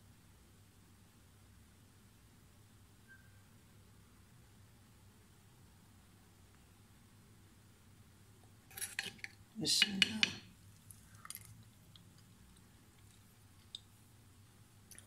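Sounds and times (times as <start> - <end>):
spoon scraping a clay bowl: 8.7 - 11.5.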